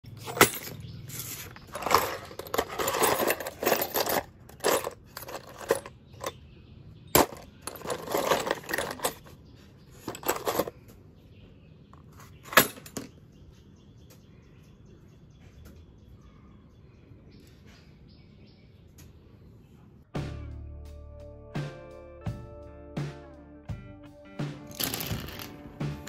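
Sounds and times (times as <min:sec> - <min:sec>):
bolts clinking in a tray: 0:00.1 - 0:06.4, 0:07.1 - 0:10.8, 0:12.2 - 0:13.1, 0:24.7 - 0:25.6.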